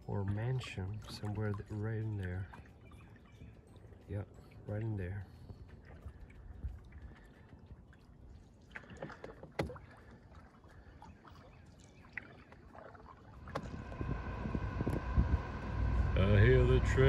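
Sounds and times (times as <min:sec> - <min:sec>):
canoe paddle splashing in water: 0:08.4 - 0:14.0
freight train passing: 0:14.1 - 0:17.0.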